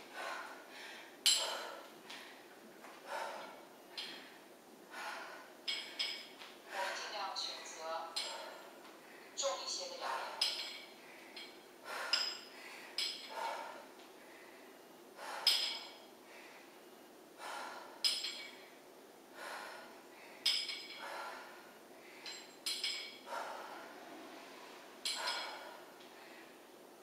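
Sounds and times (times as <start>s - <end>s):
woman breathing hard: 0.0s - 7.2s, 8.2s - 27.0s
dumbbell clink: 1.2s - 1.8s, 3.9s - 4.3s, 5.7s - 6.4s, 8.1s - 8.7s, 10.3s - 13.6s, 15.4s - 16.1s, 18.0s - 18.7s, 20.4s - 21.1s, 22.2s - 23.4s, 25.0s - 25.8s.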